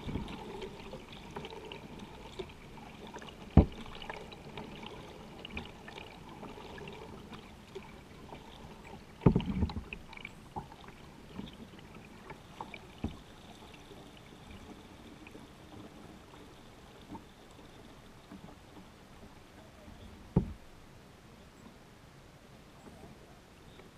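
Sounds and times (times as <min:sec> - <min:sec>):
paddle splashing water: 0:00.0 - 0:20.9
knocks on kayak hull: 0:20.3 - 0:20.6.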